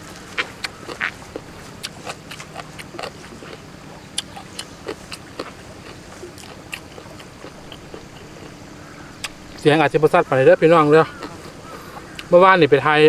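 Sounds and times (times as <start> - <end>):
person chewing wetly: 0.4 - 8.6, 9.2 - 9.4, 11.1 - 12.3.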